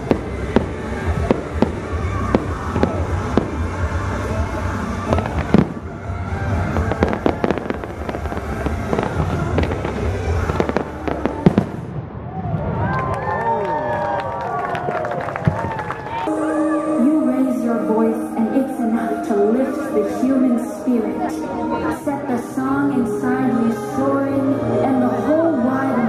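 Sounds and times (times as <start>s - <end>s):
fireworks bangs and pops: 0.0s - 4.0s, 5.0s - 12.0s
show music: 16.2s - 26.0s.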